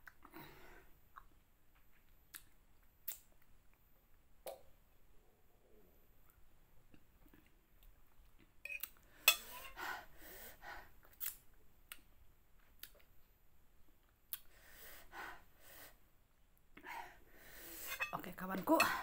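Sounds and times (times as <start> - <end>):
person blowing hard breaths: 16.8 - 18.0.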